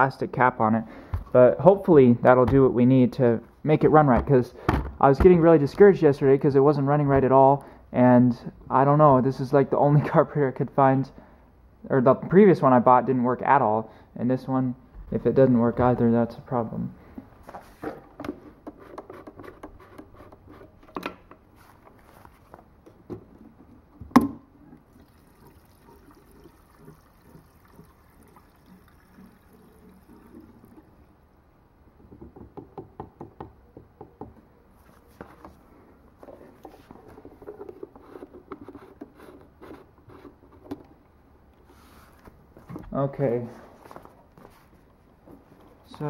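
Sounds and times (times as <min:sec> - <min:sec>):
gasoline pouring into tank: 0:24.8 - 0:31.4.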